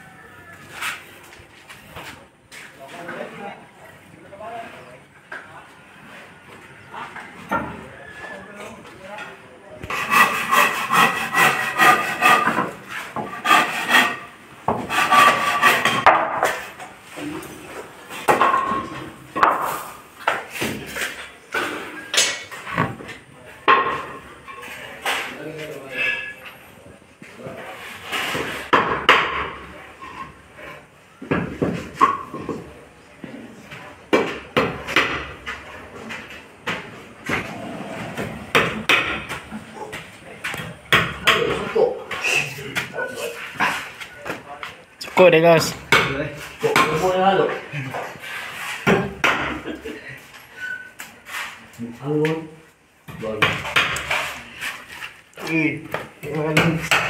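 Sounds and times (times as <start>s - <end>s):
handsaw cutting wood: 9.9s - 16.0s.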